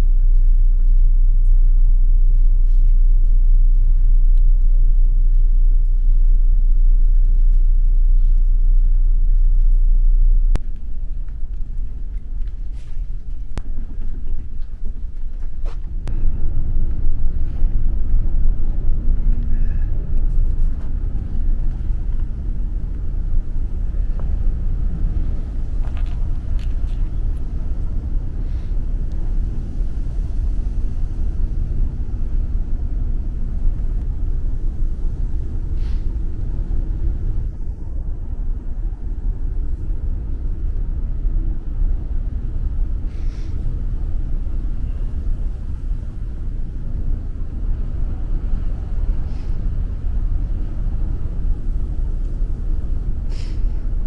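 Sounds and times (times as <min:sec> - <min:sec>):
faint engine hum: 0:00.0 - 0:54.0
ferry low rumble: 0:00.0 - 0:54.0
wind on microphone: 0:00.0 - 0:54.0.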